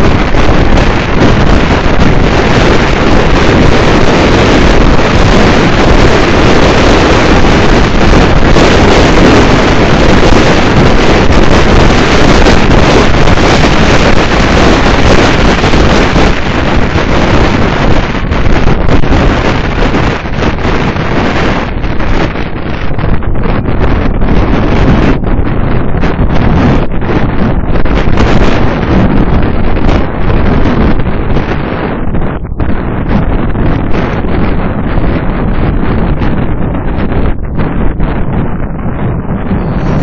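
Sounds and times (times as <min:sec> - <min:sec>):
car road noise: 0:00.0 - 0:40.0
wind rushing over microphone: 0:00.0 - 0:40.0.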